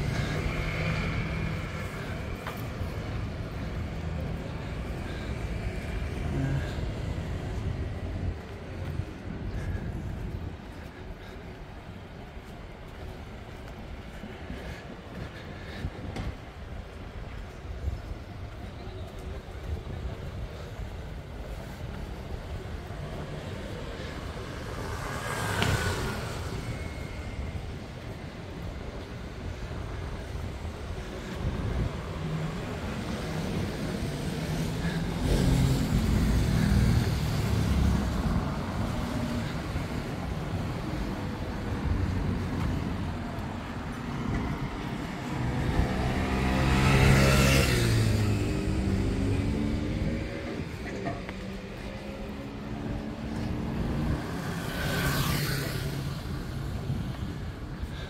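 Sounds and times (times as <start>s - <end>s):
low rumble of traffic: 0.0s - 58.0s
vehicle passing close by: 33.0s - 40.3s, 44.1s - 56.6s.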